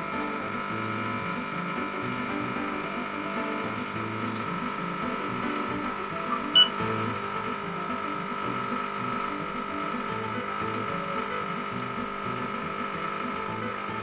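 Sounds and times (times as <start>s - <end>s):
espresso machine pump buzzing: 0.0s - 14.0s
scale electronic beep: 6.3s - 6.8s.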